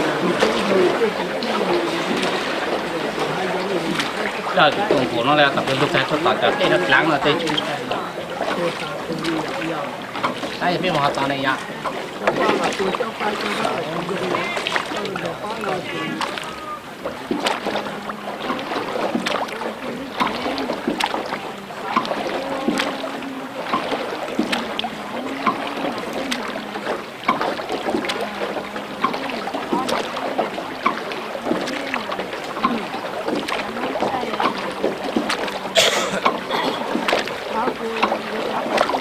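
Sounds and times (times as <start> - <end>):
indistinct voices talking: 0.0 - 39.0.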